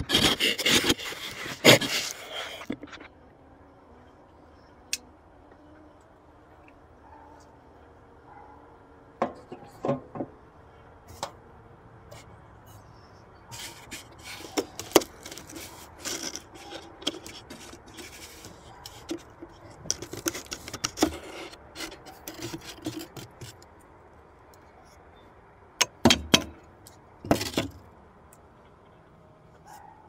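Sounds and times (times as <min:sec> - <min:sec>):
wood scraping and rubbing: 0:00.0 - 0:03.1, 0:13.5 - 0:23.6.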